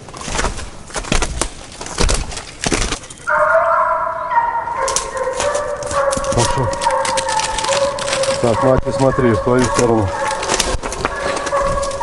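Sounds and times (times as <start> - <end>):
hound baying: 3.2 - 12.0
footsteps crunching through dry leaves: 4.8 - 12.0.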